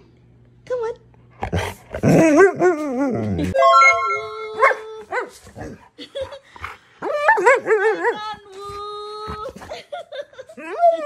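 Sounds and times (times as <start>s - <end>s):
steady musical tones: 3.6s - 4.6s.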